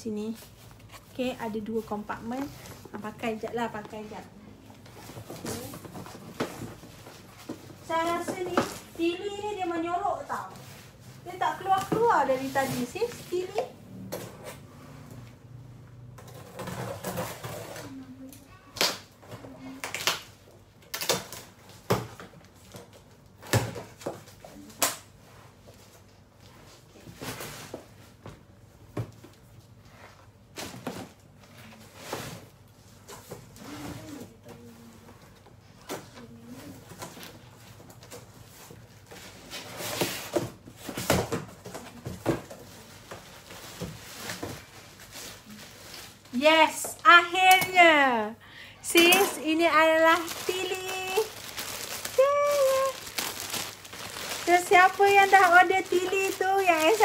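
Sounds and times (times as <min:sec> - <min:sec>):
cardboard boxes rustling and knocking: 0:04.8 - 0:08.9
cardboard boxes rustling: 0:04.8 - 0:09.0, 0:49.0 - 0:57.0.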